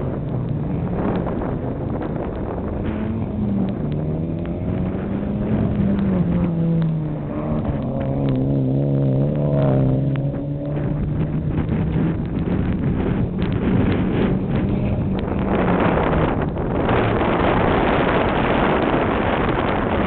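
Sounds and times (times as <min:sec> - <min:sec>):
rally car engine revving: 0:00.0 - 0:20.0.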